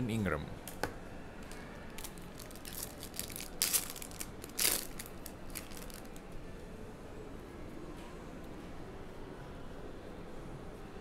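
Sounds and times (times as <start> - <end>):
packaging crinkling and rustling: 2.0 - 6.2.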